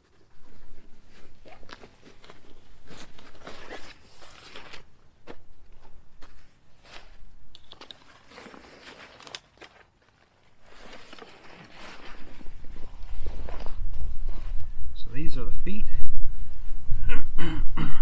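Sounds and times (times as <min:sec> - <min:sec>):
rustling and crunching: 0:00.0 - 0:15.0.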